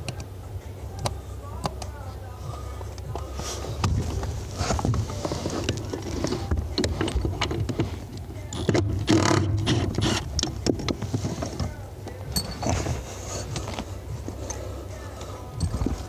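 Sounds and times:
tools clicking and knocking: 0:04.8 - 0:14.6, 0:15.5 - 0:16.0.

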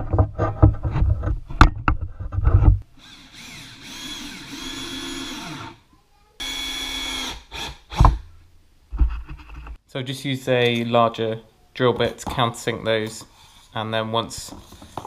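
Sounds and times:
cordless drill whining: 0:03.0 - 0:05.8, 0:06.4 - 0:08.2.

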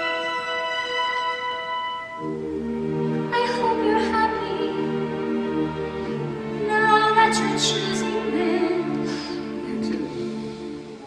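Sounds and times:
orchestra strings holding chords: 0:00.0 - 0:11.0.

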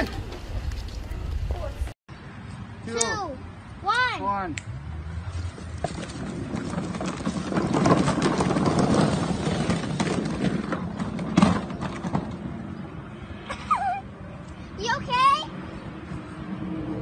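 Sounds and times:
plastic toy jeep rattling: 0:05.7 - 0:12.4.

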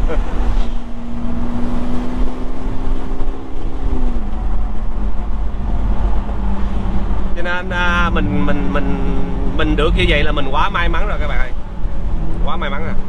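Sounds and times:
vehicle engine droning: 0:00.0 - 0:13.0.

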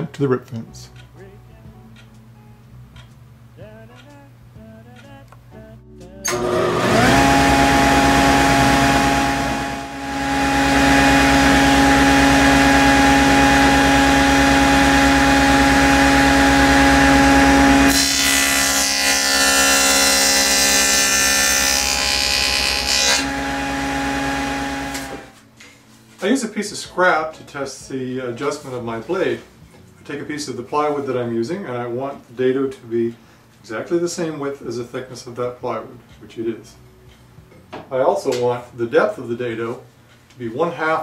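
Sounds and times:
saw cutting plywood: 0:06.3 - 0:25.4
table saw running: 0:06.3 - 0:25.4.

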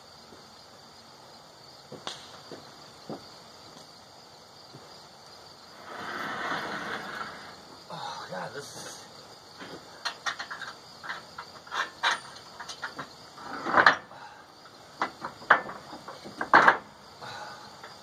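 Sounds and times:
metal carriage scraping on rail: 0:05.8 - 0:07.6, 0:13.4 - 0:14.0
metal clanks and knocks: 0:09.6 - 0:14.1, 0:15.0 - 0:16.9.

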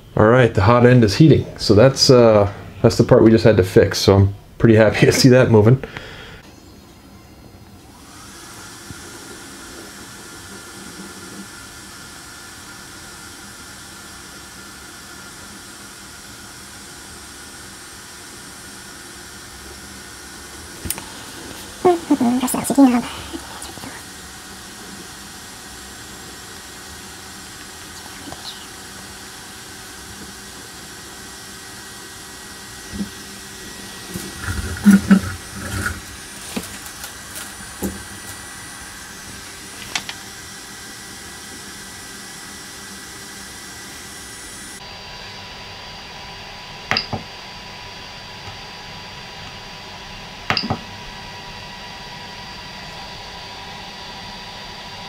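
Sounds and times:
cooling fans whirring: 0:00.0 - 0:55.0.

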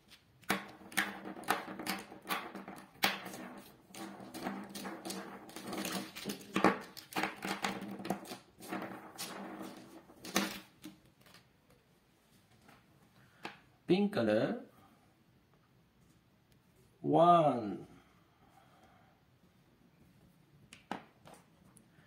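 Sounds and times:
marker pens clattering together: 0:00.1 - 0:11.5.

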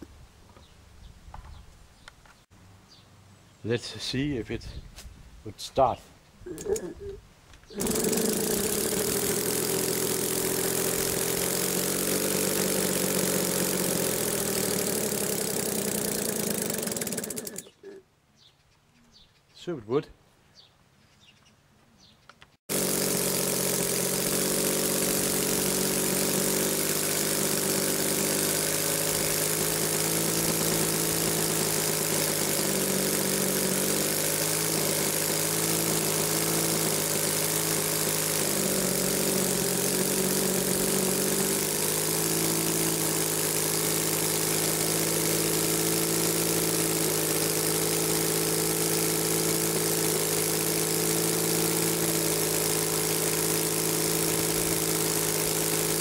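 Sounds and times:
radial engine running: 0:07.7 - 0:17.7, 0:22.7 - 0:56.0.

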